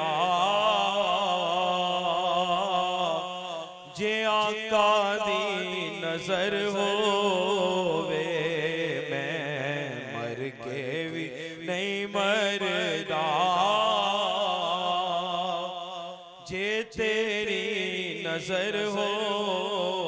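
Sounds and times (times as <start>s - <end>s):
man singing unaccompanied: 0.0s - 15.8s, 16.4s - 20.0s.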